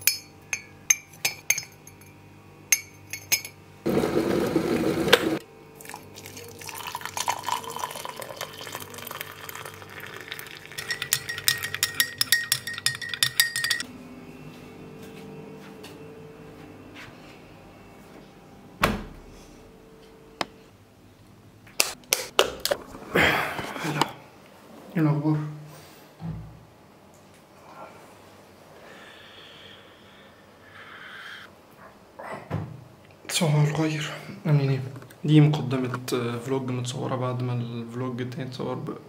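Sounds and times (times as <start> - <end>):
spoon clinking against mug: 0.0 - 2.1, 2.7 - 3.6, 6.7 - 13.8
water pouring into mug: 5.8 - 12.0.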